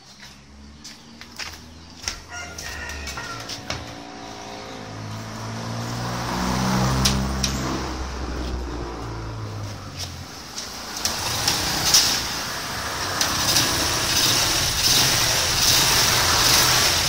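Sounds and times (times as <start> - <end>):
motorcycle engine kick-started: 10.6 - 17.0.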